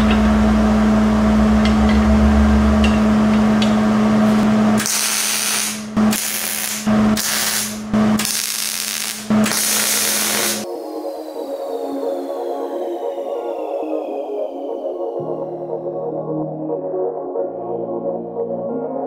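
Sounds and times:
welder hum: 0.0s - 14.2s
welding arc crackling: 4.8s - 10.7s.

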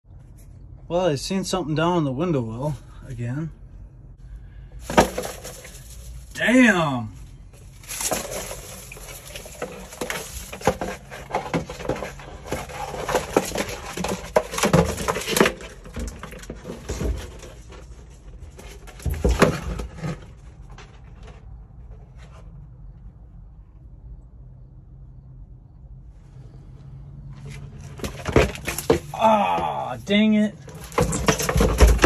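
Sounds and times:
plastic dustpan scraping pine needles: 7.8s - 15.8s.

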